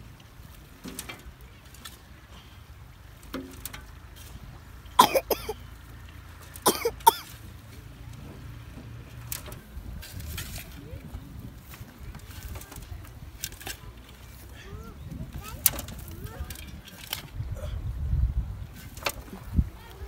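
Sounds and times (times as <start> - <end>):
person coughing: 5.0 - 5.6, 6.7 - 7.3.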